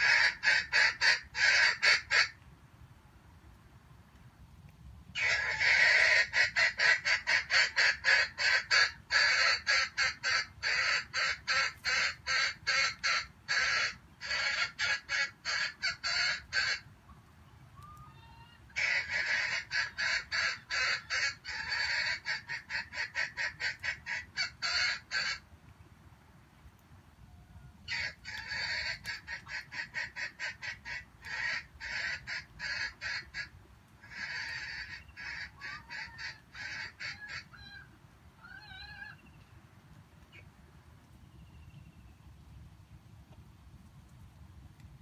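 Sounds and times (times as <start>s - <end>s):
junglefowl clucking: 0.0s - 2.4s, 5.2s - 16.9s, 17.8s - 25.4s, 27.8s - 39.4s.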